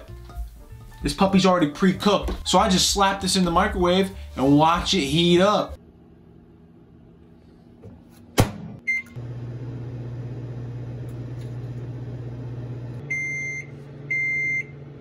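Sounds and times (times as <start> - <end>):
microwave oven humming: 5.8 - 15.0.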